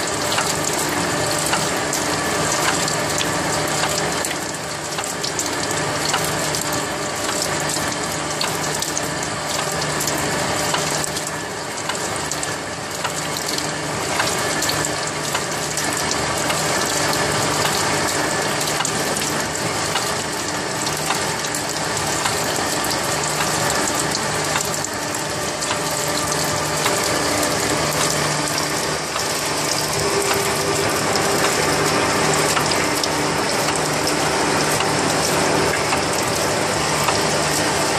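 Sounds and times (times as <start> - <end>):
cutting oil flowing: 0.0 - 37.9
steady hum: 13.6 - 37.9.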